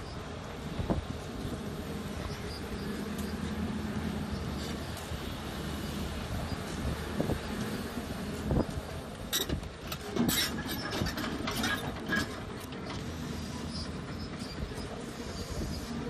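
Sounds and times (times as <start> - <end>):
excavator diesel engine running: 0.0 - 16.0
metallic clanks and rattles: 9.3 - 13.1.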